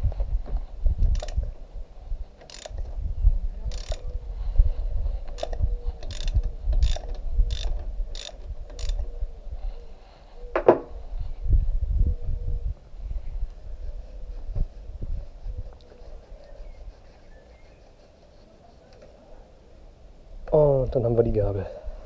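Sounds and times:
ratchet wrench clicking: 0:01.1 - 0:01.4, 0:02.4 - 0:02.9, 0:03.7 - 0:04.0, 0:05.4 - 0:09.0.

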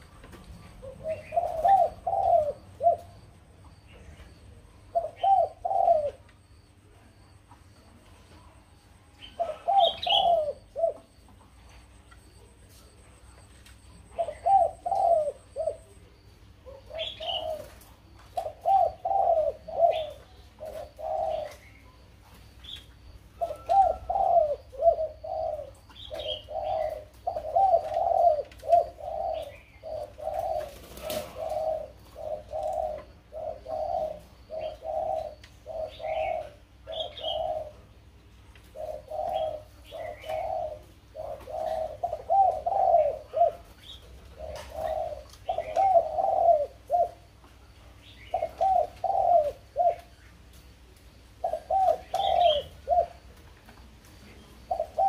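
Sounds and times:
bird singing fluty notes: 0:08.8 - 0:11.3, 0:18.3 - 0:30.8.

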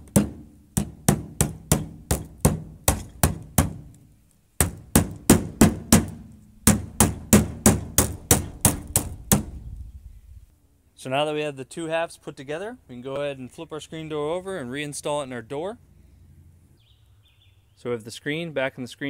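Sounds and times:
hammer tapping frame: 0:00.0 - 0:03.8, 0:04.6 - 0:09.6.

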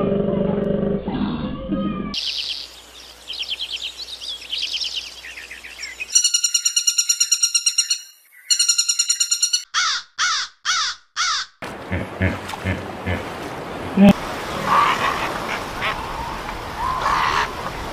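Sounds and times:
soft chirping trills: 0:02.2 - 0:09.7
woodpecker calling: 0:02.2 - 0:11.6.

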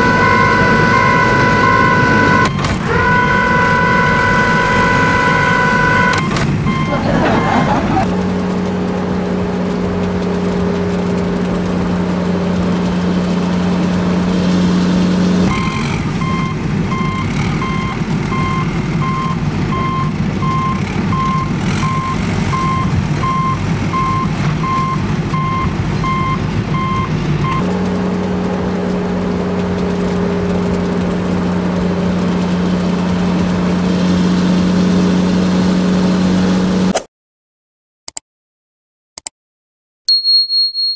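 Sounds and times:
reversing alarm beeping: 0:00.0 - 0:08.1, 0:15.5 - 0:27.7, 0:40.1 - 0:40.9
truck engine idling: 0:00.0 - 0:33.8.

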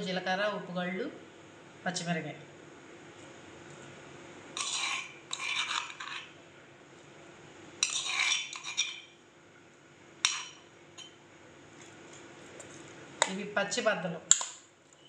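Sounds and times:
spoon scraping in a bowl: 0:04.6 - 0:06.4, 0:07.8 - 0:09.2, 0:10.2 - 0:11.2.

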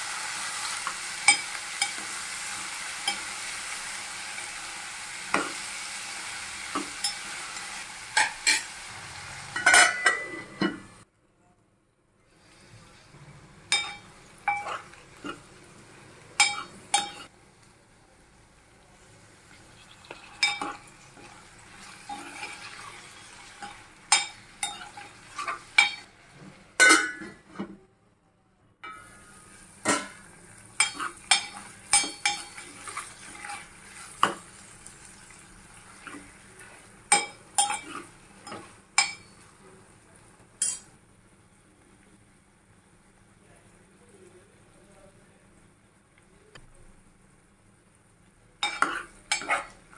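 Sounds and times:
faint sizzle of frying vegetables: 0:00.0 - 0:11.1, 0:12.2 - 0:27.6, 0:28.9 - 0:49.9
spoon knocking and scraping pot: 0:20.0 - 0:21.3, 0:30.8 - 0:34.4.

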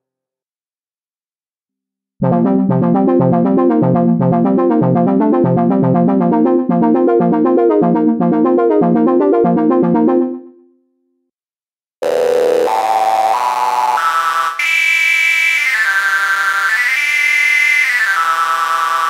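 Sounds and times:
pulsing synth bass line: 0:02.2 - 0:10.5
synthesizer repeated notes: 0:02.2 - 0:10.7, 0:12.0 - 0:19.0.

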